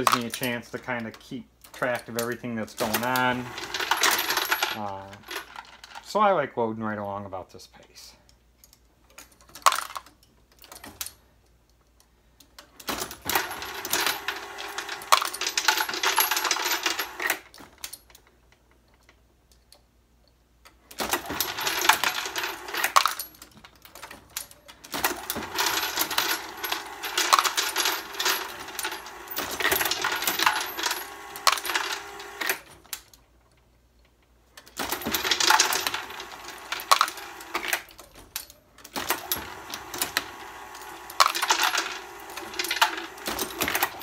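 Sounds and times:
brass cases clattering in feeder: 2.8 - 6.0, 13.1 - 17.4, 21.0 - 32.7, 34.8 - 44.0
motor hum: 25.0 - 32.7, 39.0 - 44.0.

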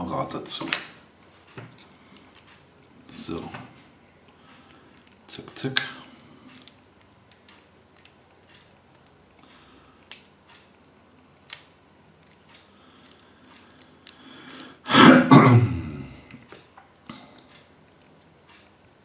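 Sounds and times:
plastic toy parts snapping: 11.4 - 12.4
person clearing throat: 14.9 - 16.3.

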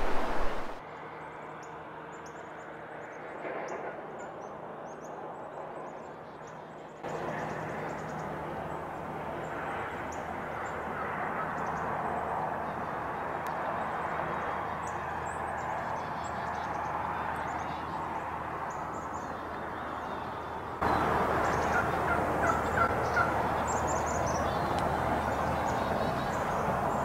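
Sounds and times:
birds chirping: 0.0 - 0.8, 5.8 - 27.0
steady background hiss: 0.0 - 0.8.

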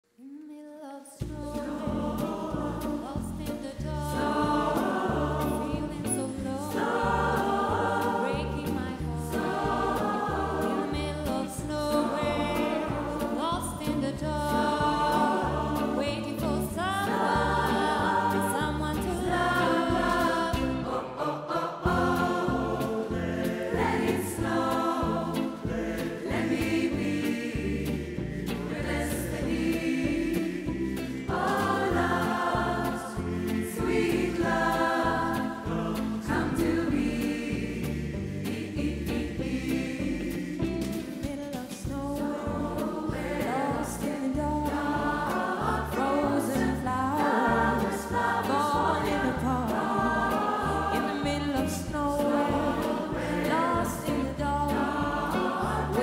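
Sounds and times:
woman singing into a microphone: 0.2 - 2.2, 2.8 - 4.8, 5.5 - 6.9, 8.1 - 9.6, 10.7 - 20.5, 41.2 - 42.8, 43.4 - 54.9
choir singing: 1.2 - 56.0
band accompaniment with bass line: 1.3 - 20.9, 21.9 - 56.0.

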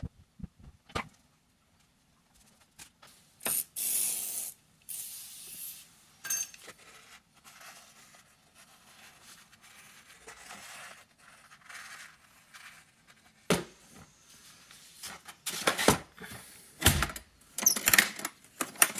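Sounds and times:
aerosol spray hiss: 3.4 - 5.9.

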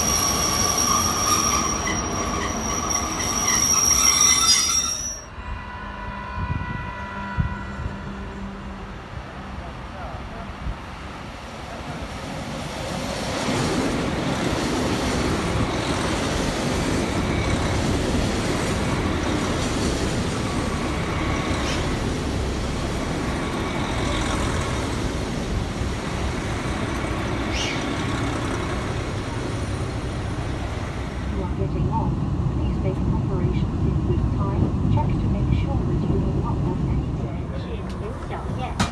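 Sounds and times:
short high squeals: 0.0 - 5.3
diesel train engine and wheel rumble: 0.0 - 38.9.

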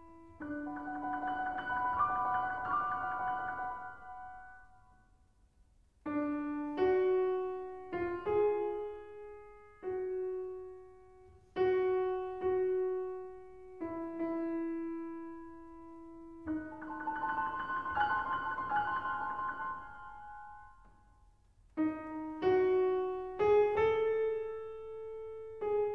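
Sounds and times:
slow solo piano notes: 6.1 - 21.1, 21.8 - 25.9.

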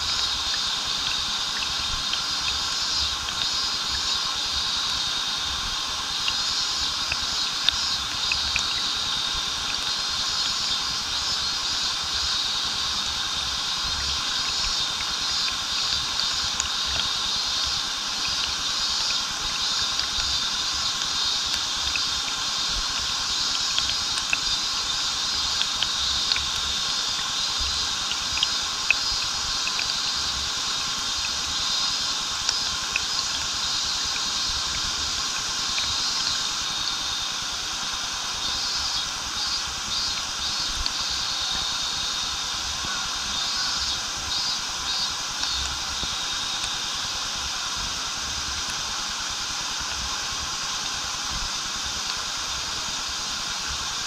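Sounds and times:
cicadas buzzing: 0.0 - 54.0
small waterfall rushing: 0.0 - 54.0
water drops clicking: 0.1 - 4.1, 6.2 - 10.8, 13.8 - 31.4, 32.4 - 36.9, 42.8 - 46.8.

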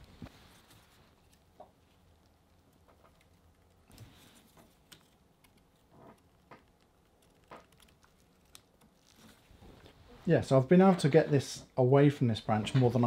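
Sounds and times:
bonsai branch creaking: 2.8 - 10.1.

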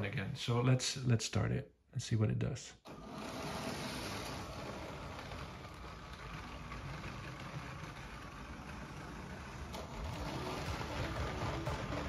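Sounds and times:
toy train motor rumbling: 2.9 - 12.0.

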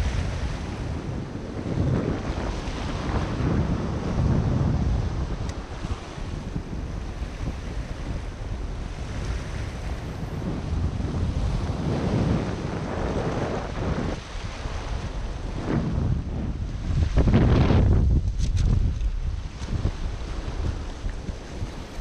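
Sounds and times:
ocean surf breaking on rocks: 0.0 - 22.0
wind buffeting microphone: 0.0 - 22.0.

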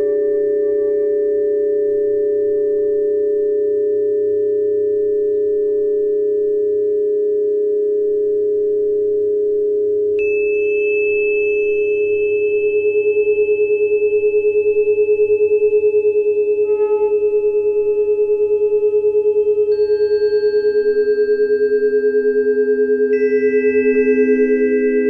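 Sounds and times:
pure tone drone: 0.0 - 25.0
higher ringing tone: 10.2 - 25.0.

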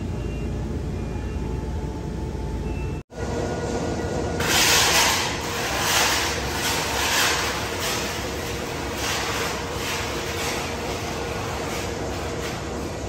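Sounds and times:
steady background hum: 0.0 - 13.0
steel blade scraping concrete: 4.4 - 13.0.

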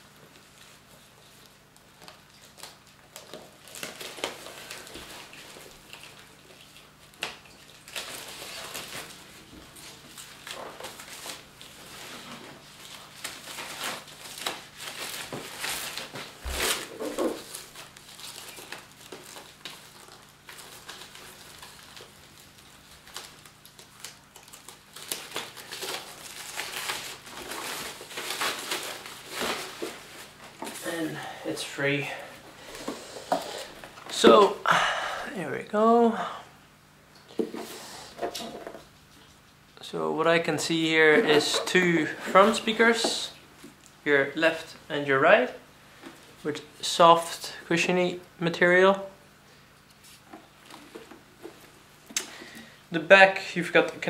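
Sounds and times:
plastic wrap crinkling: 0.3 - 34.6, 41.0 - 44.0.

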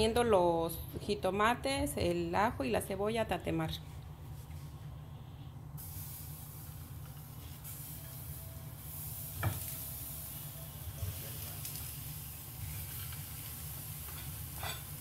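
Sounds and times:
gas burner hissing: 5.0 - 15.0.

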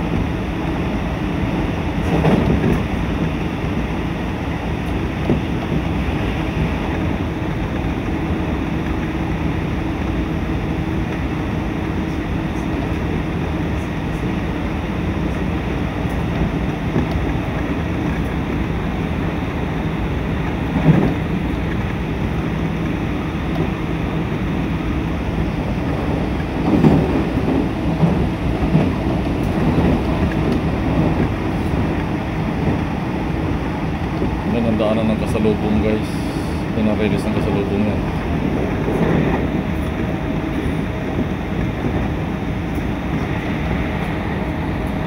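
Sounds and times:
train rumble and rail noise: 0.0 - 45.0.

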